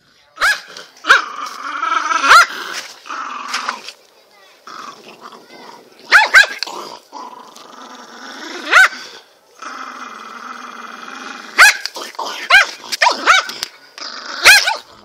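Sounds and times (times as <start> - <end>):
small dog barking: 0.4 - 1.3, 2.2 - 2.5, 6.1 - 6.6, 8.7 - 8.9, 11.6 - 13.5, 14.4 - 14.9
small dog growling: 1.0 - 3.9, 4.6 - 15.0.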